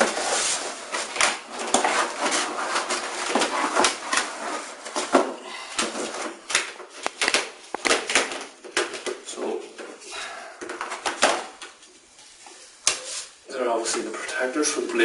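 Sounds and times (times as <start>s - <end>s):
cardboard rustling and scraping: 0.0s - 7.0s.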